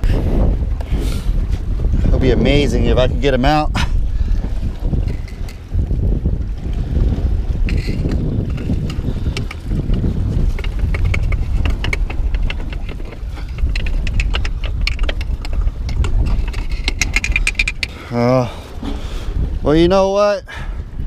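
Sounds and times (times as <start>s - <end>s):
wind buffeting microphone: 0.0s - 21.0s
hands and clothing scraping rocks: 4.4s - 5.8s, 6.9s - 19.4s.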